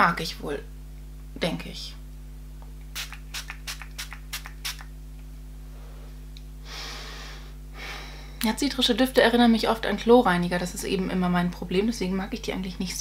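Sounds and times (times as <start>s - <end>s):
pump sprayer puffs: 3.0s - 4.9s.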